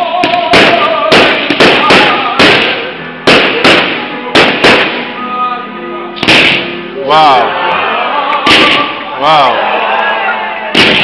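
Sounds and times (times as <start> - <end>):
fireworks bursting with loud bangs: 0.0 - 5.2, 6.2 - 6.8, 8.4 - 9.0, 10.7 - 11.0.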